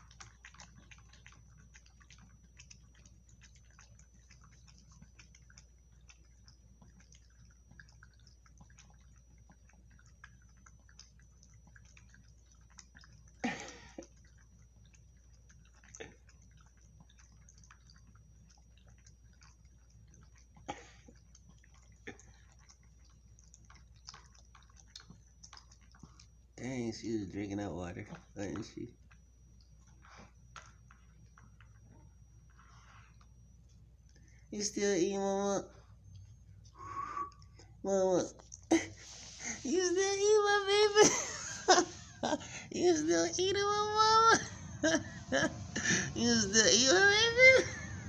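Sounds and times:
dog chewing from plastic bowl: 0:00.0 - 0:36.0.

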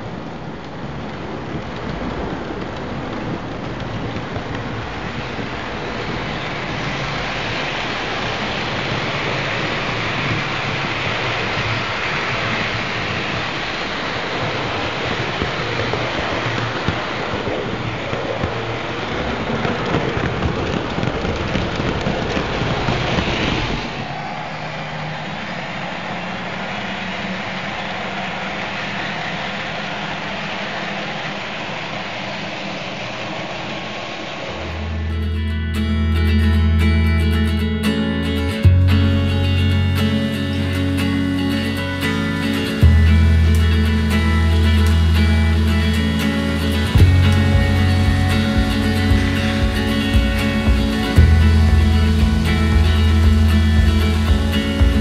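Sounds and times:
model train wheels on rails: 0:00.0 - 0:35.0.

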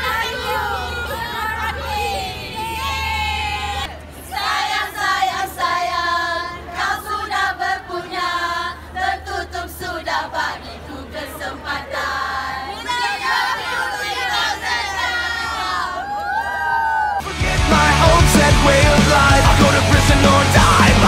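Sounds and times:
women singing in chorus: 0:00.0 - 0:16.2.

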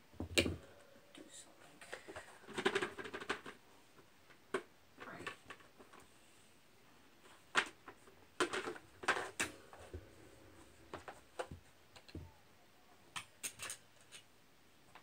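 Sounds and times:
plastic parts clattering: 0:01.8 - 0:03.6, 0:07.5 - 0:10.0, 0:13.1 - 0:14.3.

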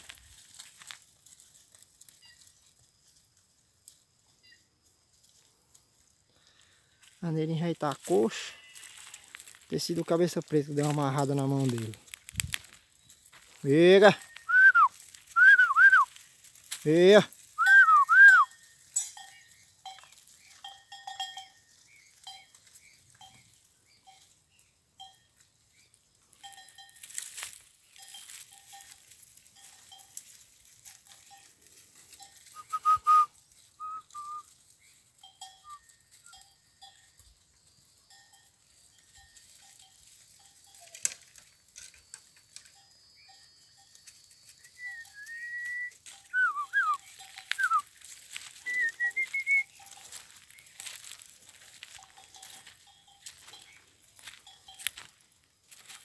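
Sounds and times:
person whistling sliding up and down: 0:14.4 - 0:16.1, 0:17.6 - 0:18.5, 0:32.6 - 0:34.5, 0:44.6 - 0:47.0, 0:47.6 - 0:47.8, 0:48.6 - 0:49.7.

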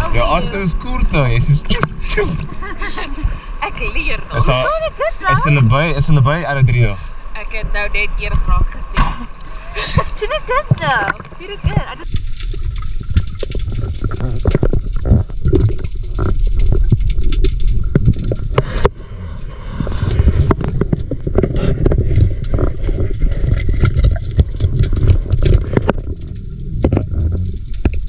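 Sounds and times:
underwater rumble of moving water: 0:00.0 - 0:28.0
underwater clicks and knocks: 0:10.7 - 0:28.0.

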